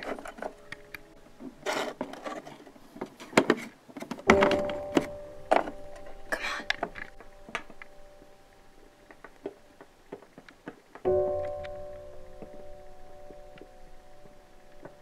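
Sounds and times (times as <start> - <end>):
faint low steady tone: 4.3 - 9.8.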